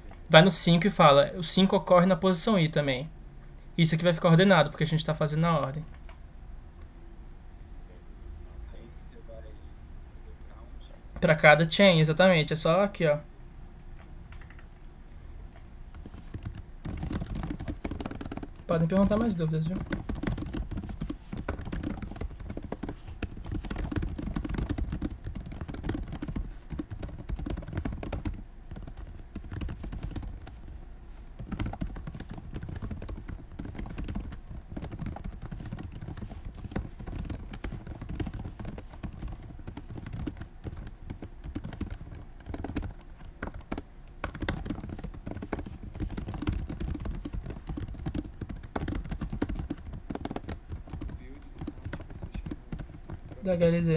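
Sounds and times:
keyboard typing: 5.7s - 6.2s, 13.8s - 53.9s.

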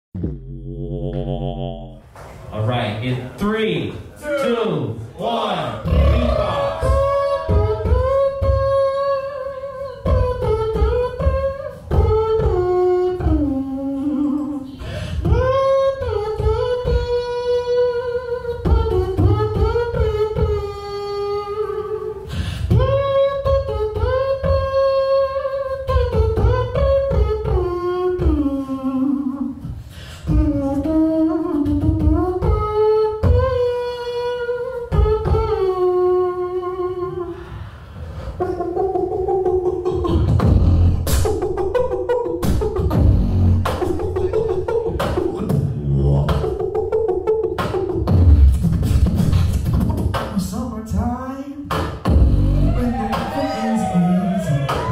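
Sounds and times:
mouth kick-drum beats: 0.2s - 2.0s, 39.4s - 50.5s, 51.6s - 53.4s
hummed melody: 5.8s - 29.7s, 30.3s - 37.4s.

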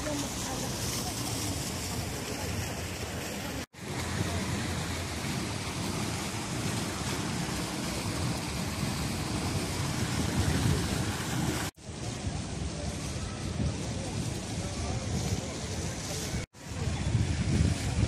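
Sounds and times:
fountain water splashing into pool: 0.0s - 18.0s
wind buffeting microphone: 3.8s - 18.0s.

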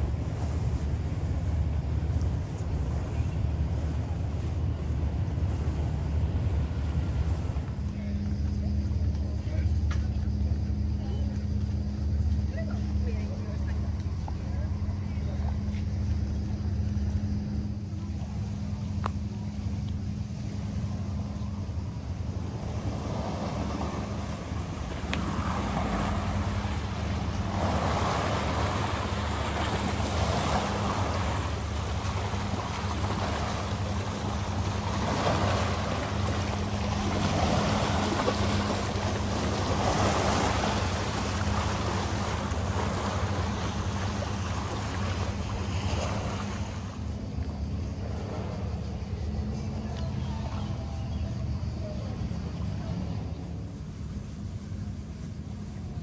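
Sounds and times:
boat engine drone: 0.0s - 56.0s
water rushing: 18.0s - 49.4s.

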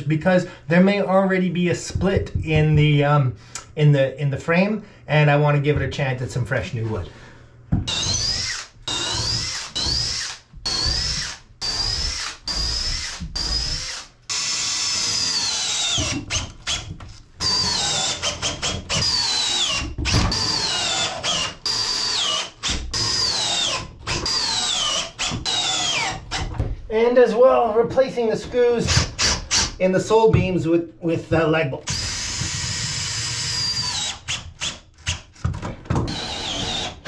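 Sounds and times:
person speaking: 0.0s - 7.2s, 26.9s - 29.0s, 29.8s - 31.9s
cordless drill whining: 7.9s - 26.4s, 31.9s - 34.7s, 36.1s - 37.0s.

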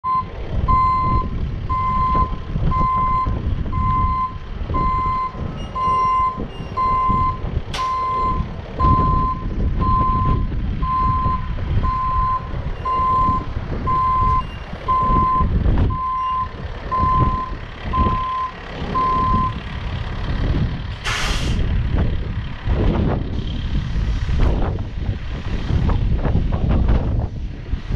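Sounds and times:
truck backup alarm beeping: 0.0s - 19.7s
truck engine rumble: 0.0s - 27.9s
sharp click: 7.7s - 8.0s
short loud hiss: 21.0s - 21.6s.

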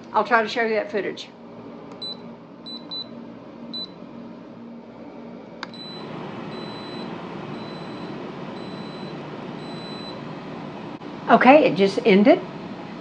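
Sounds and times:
fan whirring: 0.0s - 13.0s
control panel beep: 2.0s - 3.1s, 3.8s - 4.0s, 5.7s - 10.2s.

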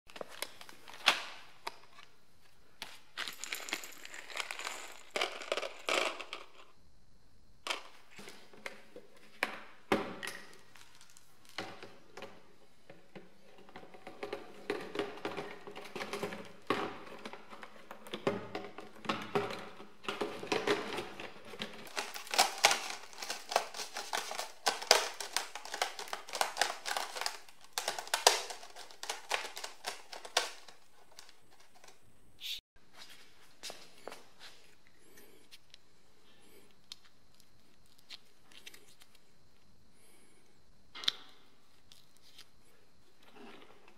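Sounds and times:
plastic rustling and crinkling: 0.1s - 6.7s, 10.4s - 32.0s.

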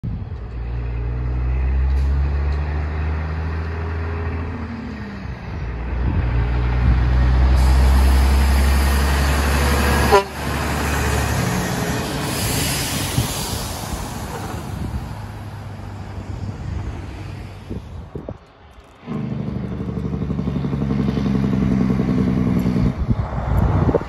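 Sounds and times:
diesel truck engine pulling away: 0.1s - 24.0s
truck horn toot: 9.6s - 11.1s.

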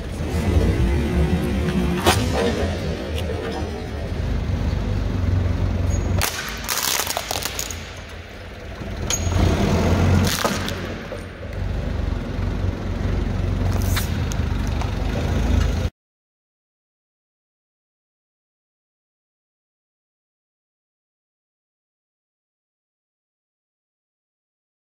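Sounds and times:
forklift engine rumbling: 0.0s - 15.9s
plastic case shattering: 6.2s - 8.1s
tyre crushing brittle objects: 6.2s - 8.1s.

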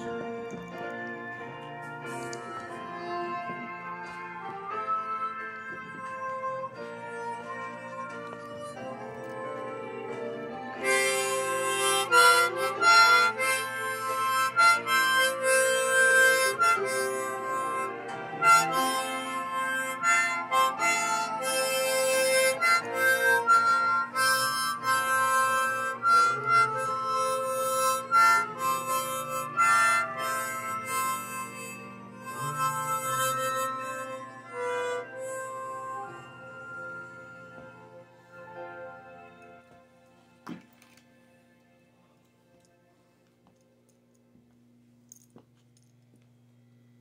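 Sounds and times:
harmonica melody: 0.0s - 40.4s
instrumental backing track: 0.0s - 41.4s.

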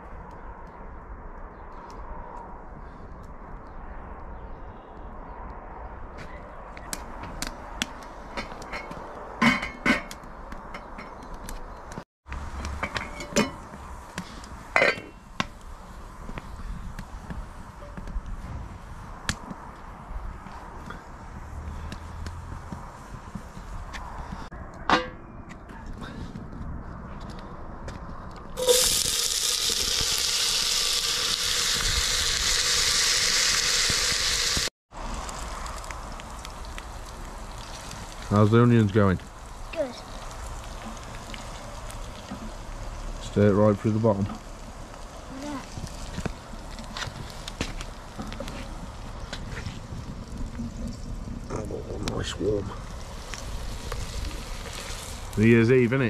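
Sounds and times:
onions sizzling in hot oil: 28.6s - 49.2s, 52.4s - 55.5s.

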